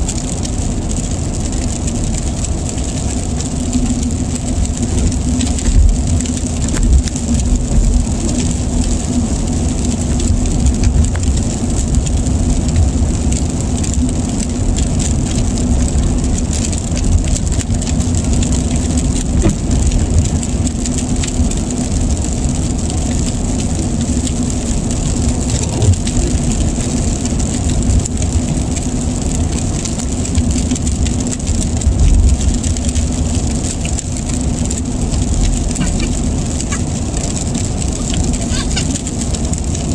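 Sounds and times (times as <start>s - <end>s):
rain ticking on windshield: 0.0s - 39.9s
tyre and engine rumble: 0.0s - 39.9s.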